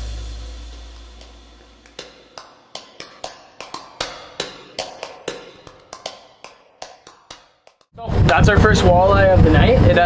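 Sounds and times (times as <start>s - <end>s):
percussive tapping music: 0.5s - 8.0s.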